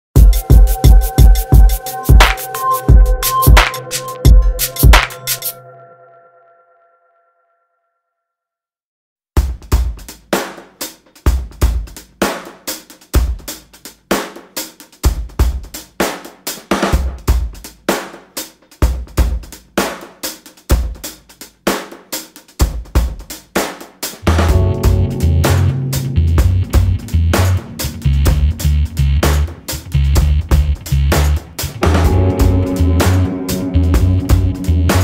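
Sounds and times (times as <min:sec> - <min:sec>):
drum-kit beat: 0:00.1 - 0:05.6, 0:09.4 - 0:35.0
bass line: 0:24.2 - 0:35.0.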